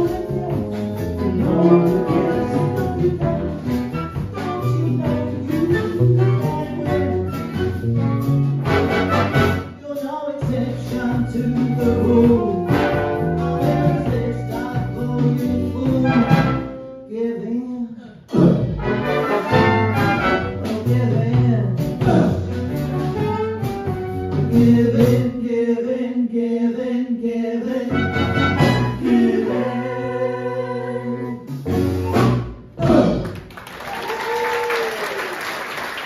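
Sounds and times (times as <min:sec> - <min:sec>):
big band with female vocals: 0:00.0 - 0:07.8, 0:09.9 - 0:16.8, 0:24.3 - 0:25.7, 0:27.8 - 0:32.4
audience applause: 0:33.2 - 0:36.0.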